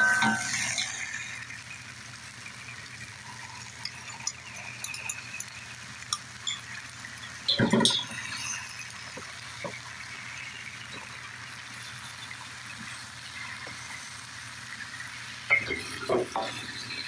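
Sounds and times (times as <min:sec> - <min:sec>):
vegetables sizzling in a wok: 0:00.0 - 0:17.0
sauce pouring: 0:00.3 - 0:17.0.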